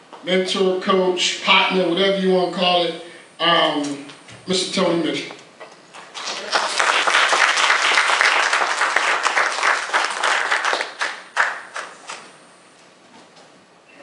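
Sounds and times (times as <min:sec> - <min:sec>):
audience applauding: 0:06.1 - 0:12.3.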